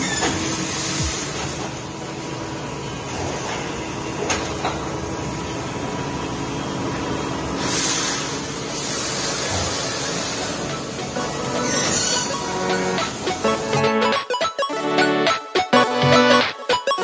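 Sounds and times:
industrial machinery humming: 0:00.0 - 0:17.0
loud hiss: 0:07.6 - 0:10.7.

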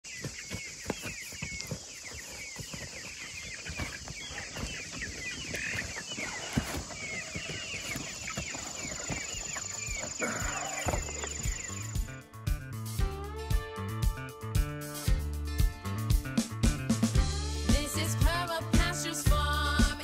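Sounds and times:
birds chirping: 0:00.0 - 0:12.3
footsteps: 0:00.1 - 0:11.8.

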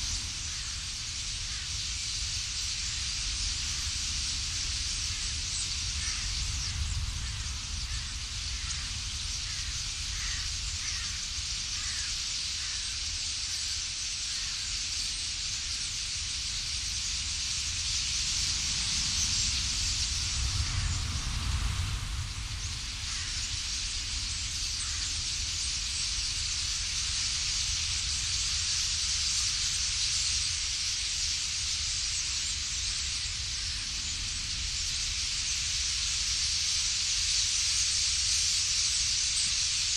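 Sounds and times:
massed starling wingbeats and calls: 0:00.0 - 0:39.9
faint short bird calls: 0:05.2 - 0:15.9.

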